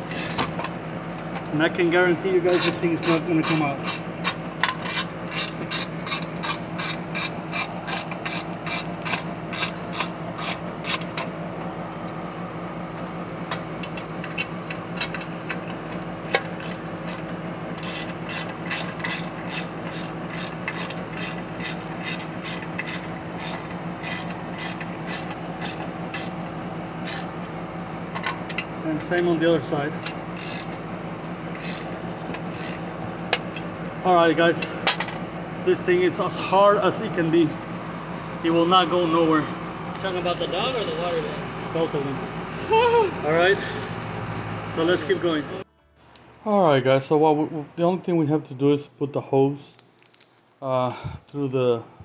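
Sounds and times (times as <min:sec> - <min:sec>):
ratchet wrench clicking: 0:02.6 - 0:11.3, 0:16.3 - 0:26.4, 0:27.0 - 0:27.3, 0:30.0 - 0:30.8, 0:31.5 - 0:31.9, 0:32.5 - 0:33.4.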